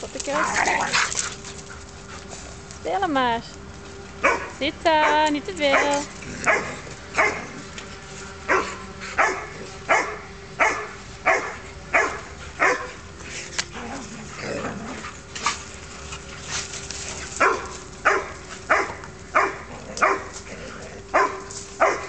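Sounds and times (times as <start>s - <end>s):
dog barking: 4.2s - 7.5s, 8.5s - 12.9s, 17.4s - 20.3s, 21.1s - 22.0s.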